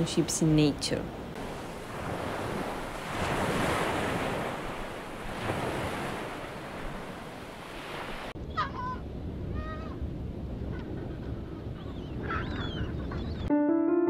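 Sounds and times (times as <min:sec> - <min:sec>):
water rushing: 0:00.0 - 0:08.4
wind: 0:00.0 - 0:13.5.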